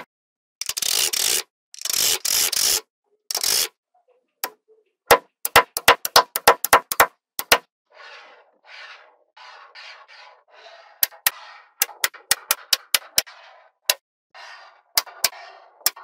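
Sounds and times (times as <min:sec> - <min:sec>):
balls scraping across table: 0:07.5 - 0:16.0.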